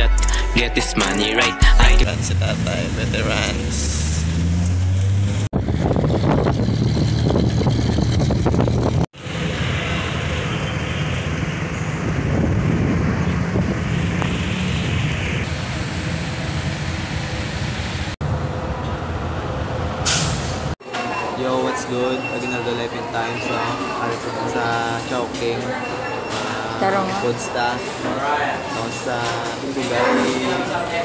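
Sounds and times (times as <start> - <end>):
road vehicles passing: 2.0 - 31.0
wind on microphone: 5.5 - 9.1, 11.3 - 15.5.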